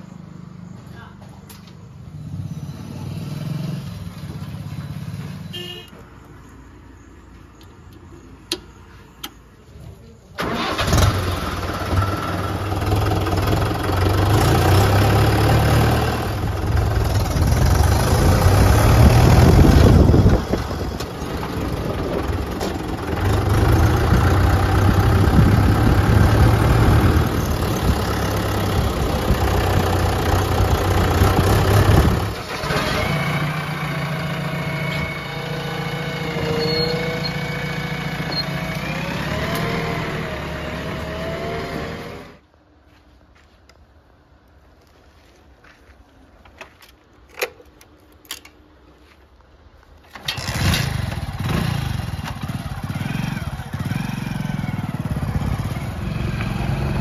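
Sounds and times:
tractor diesel engine revving: 10.4 - 42.4, 50.1 - 57.0
engine whine: 10.4 - 42.5, 50.1 - 57.0.

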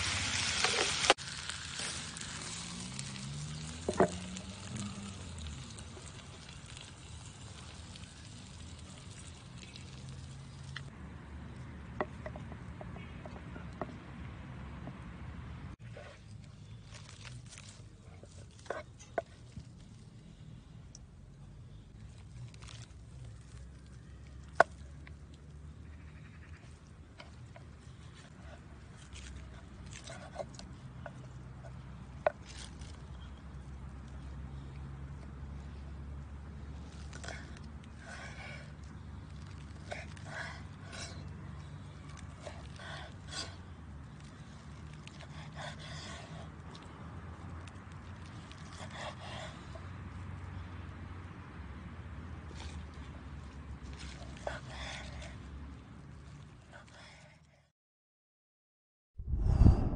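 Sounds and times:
meat being handled: 15.9 - 20.3, 21.9 - 25.7, 36.8 - 48.8, 52.5 - 54.8
low steady hum: 59.2 - 59.9.

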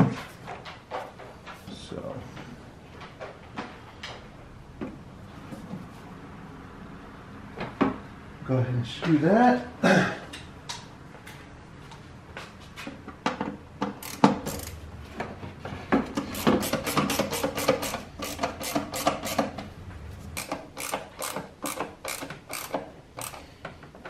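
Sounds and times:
ratcheting screwdriver clicking: 14.0 - 14.8, 16.3 - 19.5, 20.4 - 23.4.

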